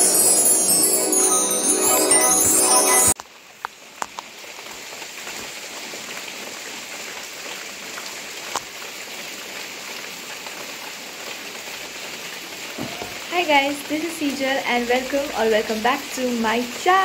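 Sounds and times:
chiming jingle: 0.0s - 3.2s
steady rain falling: 0.0s - 17.0s.

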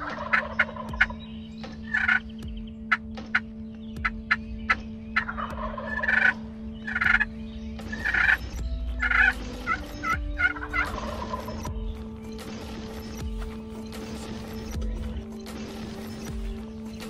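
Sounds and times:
turkeys gobbling: 0.0s - 11.7s.

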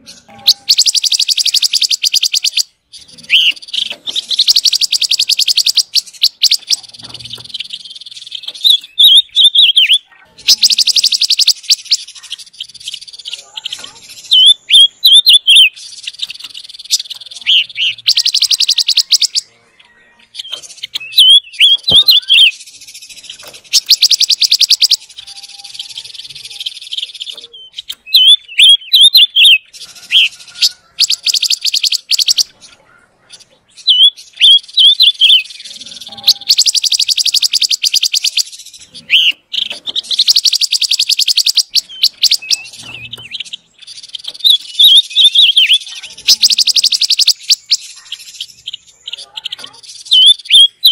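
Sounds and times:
bird dry rattling trill: 0.0s - 19.5s, 20.3s - 32.8s, 33.8s - 50.9s
bird whistling song: 0.0s - 32.6s, 33.2s - 50.9s.

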